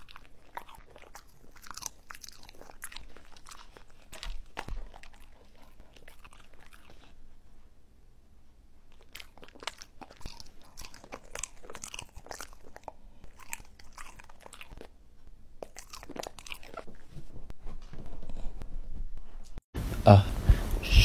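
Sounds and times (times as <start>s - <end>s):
dogs crunching apple chips: 0.0s - 7.2s, 8.9s - 15.0s, 15.6s - 17.2s.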